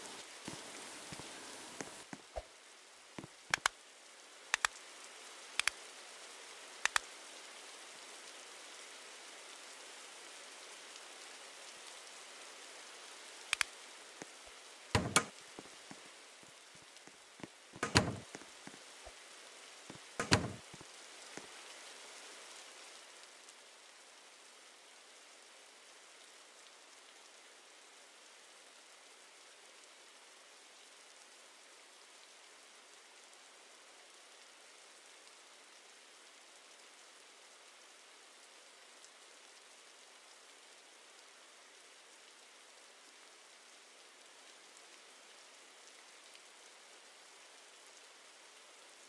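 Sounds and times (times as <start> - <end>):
steady rain hiss: 0.0 - 49.0
paired sharp clicks: 3.5 - 3.7, 15.0 - 15.3, 17.8 - 18.4, 20.2 - 20.7
loud knocks: 15.0 - 15.3.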